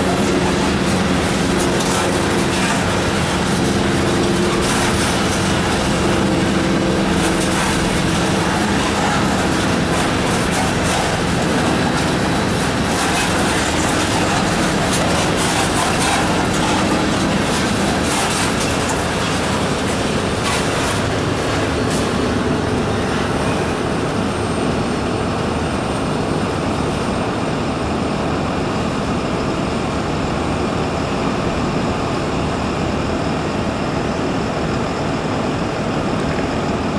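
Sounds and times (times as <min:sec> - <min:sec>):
wheels clicking over rail joints: 0:00.0 - 0:22.1
freight train rolling past: 0:00.0 - 0:25.4
steady rushing noise: 0:00.0 - 0:26.2.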